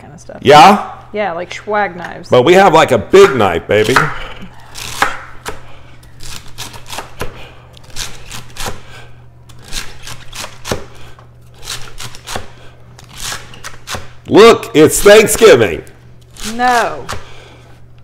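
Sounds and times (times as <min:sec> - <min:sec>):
knife chopping on cutting board: 0:03.1 - 0:08.9, 0:09.6 - 0:11.0, 0:11.6 - 0:14.1.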